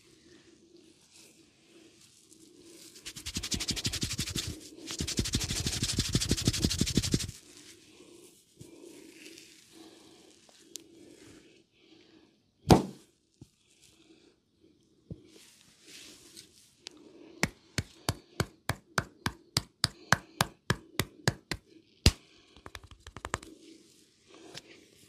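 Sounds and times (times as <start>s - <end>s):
rapid hand strokes on hair: 1.0s - 8.4s.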